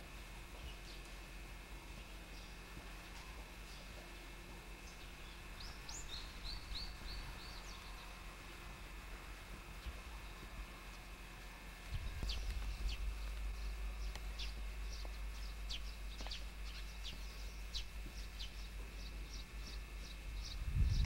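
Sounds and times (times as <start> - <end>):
steady low rumble: 0.0 - 21.0
small bird chirping: 2.0 - 8.2, 11.9 - 21.0.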